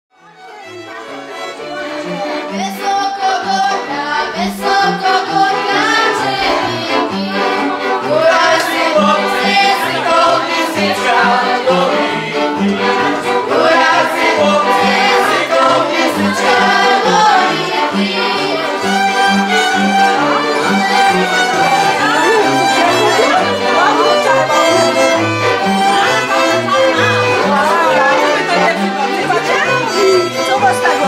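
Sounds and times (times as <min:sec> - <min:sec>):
fiddles playing lively tune: 0:00.1 - 0:31.0
voices singing along: 0:01.6 - 0:31.0.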